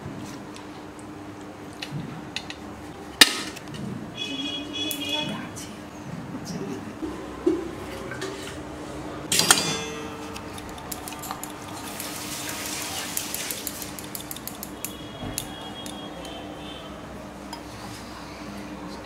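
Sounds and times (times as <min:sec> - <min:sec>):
steel bowls and utensils clattering: 0:09.3 - 0:16.1.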